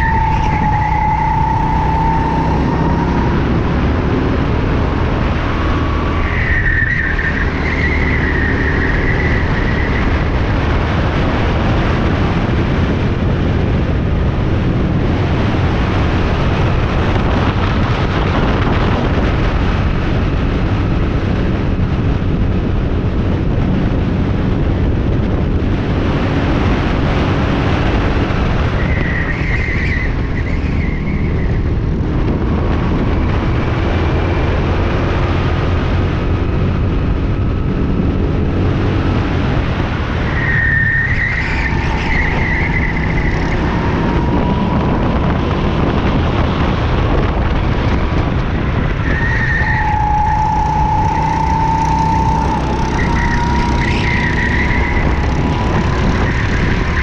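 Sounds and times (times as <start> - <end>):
go-kart engine running hard: 0.0 - 57.0
road and wind rush: 0.0 - 57.0
tyres squealing: 40.3 - 45.2, 49.0 - 57.0.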